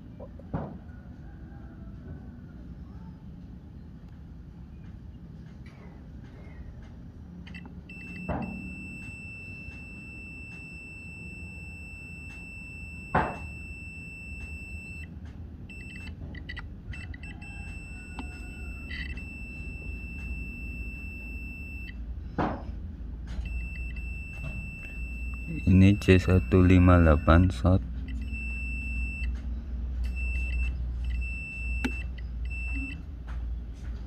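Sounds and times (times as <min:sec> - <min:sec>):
multimeter continuity beep: 0:07.4 - 0:22.4, 0:23.3 - 0:33.1.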